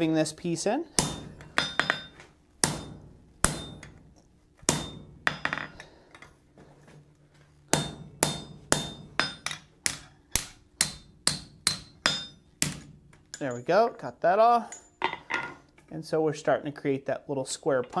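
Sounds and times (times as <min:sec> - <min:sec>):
hammer striking metal on anvil: 0:01.0 - 0:04.0, 0:04.7 - 0:05.8, 0:07.7 - 0:13.6.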